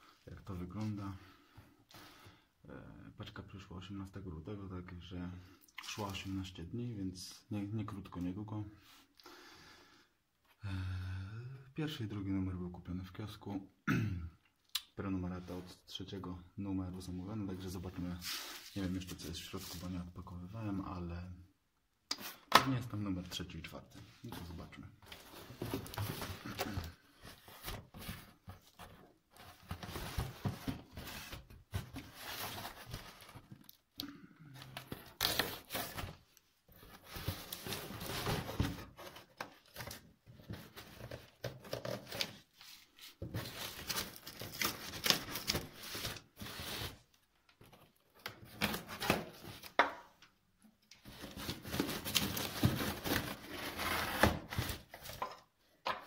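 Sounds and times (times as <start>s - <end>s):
cardboard flaps scraping and rustling: 24.3s - 33.5s, 51.0s - 55.2s.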